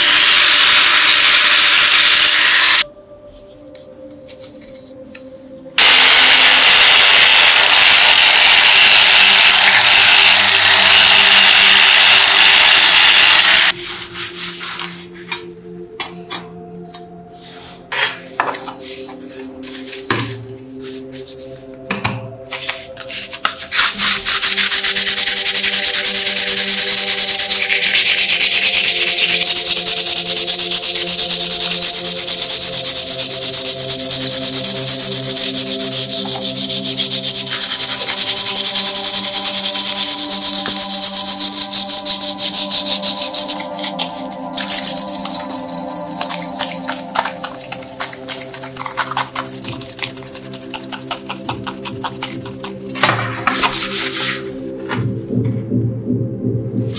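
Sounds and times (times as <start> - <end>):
loud steady hiss: 5.8 - 13.7
sandpaper rubbing plastic: 5.8 - 15.1, 22.7 - 54.6.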